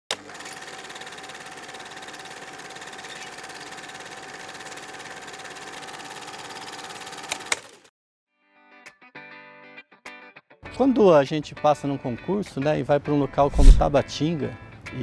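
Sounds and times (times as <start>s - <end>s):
film projector clattering: 0.1s - 7.9s.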